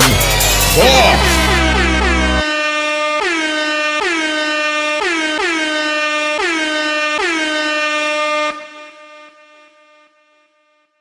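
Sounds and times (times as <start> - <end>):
backing beat: 0.0 - 2.4
air horn blasting: 0.0 - 10.9.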